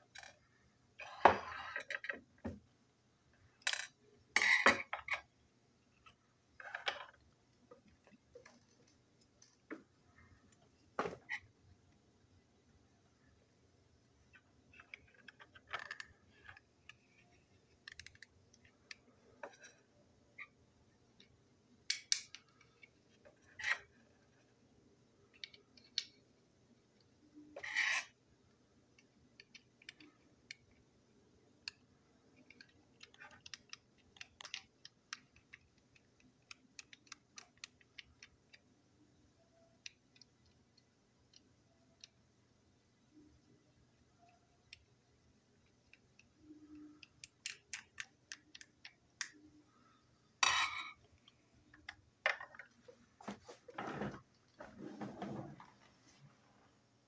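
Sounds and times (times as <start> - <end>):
plastic parts clicking and tapping: 14.3 - 19.8, 31.6 - 38.7, 45.6 - 49.6
scraping handling noises: 52.7 - 56.4.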